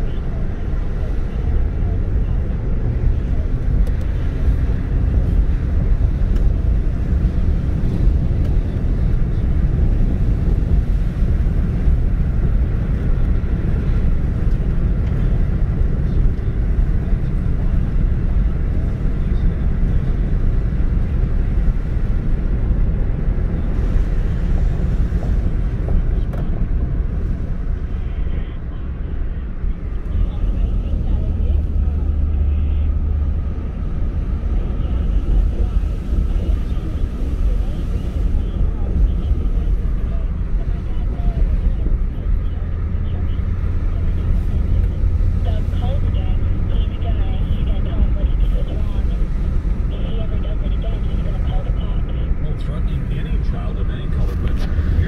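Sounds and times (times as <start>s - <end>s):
car road and engine noise: 0.0s - 55.0s.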